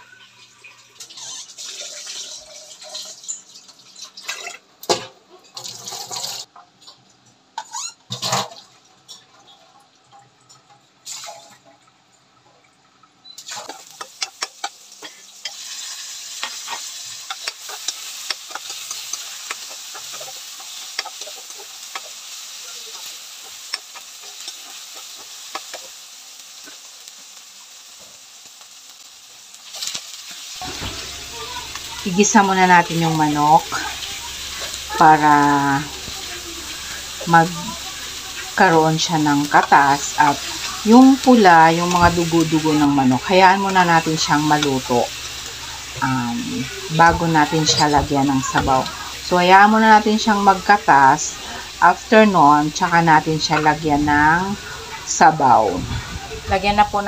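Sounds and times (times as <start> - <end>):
food sizzling in hot oil: 0.0 - 6.5, 7.6 - 9.6, 11.0 - 11.6, 13.2 - 57.0
metal spoon scraping: 15.4 - 22.1.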